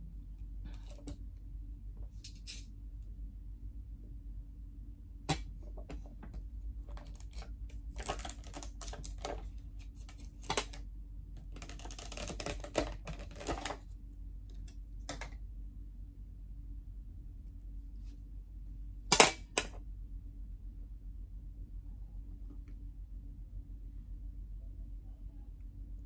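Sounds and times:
low hum: 0.0s - 11.7s, 13.8s - 26.0s
plastic rustling: 6.9s - 10.8s, 11.5s - 13.9s
plastic containers clicking: 8.0s - 9.4s.

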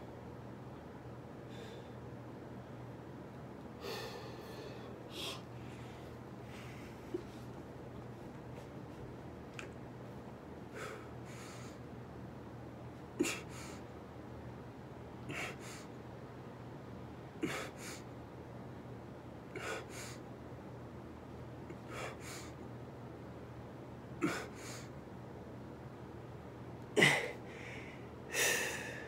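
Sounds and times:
man breathing hard: 1.5s - 2.1s, 3.8s - 7.4s, 10.7s - 11.8s, 13.2s - 13.8s, 15.3s - 16.0s, 17.4s - 18.1s, 19.6s - 20.2s, 21.7s - 22.6s, 24.2s - 24.9s, 27.0s - 29.0s.

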